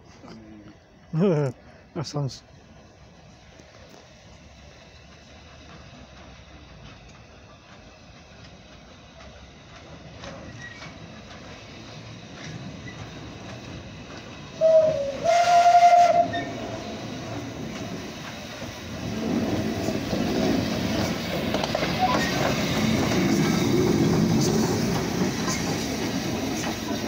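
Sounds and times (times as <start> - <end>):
steam locomotive running: 0.0 - 27.0
steam whistle: 14.6 - 16.6.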